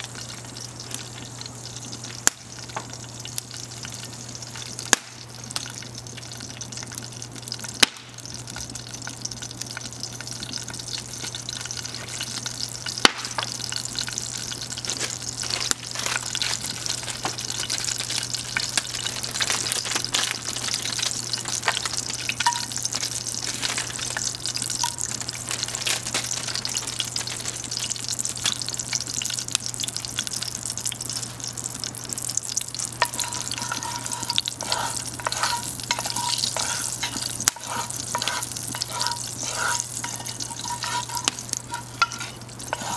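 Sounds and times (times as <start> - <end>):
oil sizzling in a pot: 0.0 - 42.9
wooden spatula stirring pot: 33.0 - 42.9.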